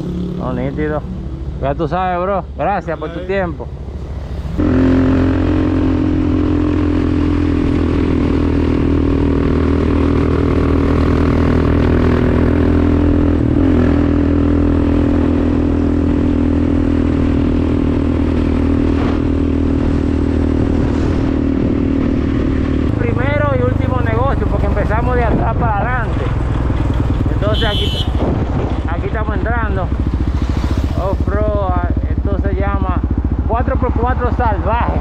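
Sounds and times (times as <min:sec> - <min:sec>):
atv engine running: 0:00.0 - 0:35.0.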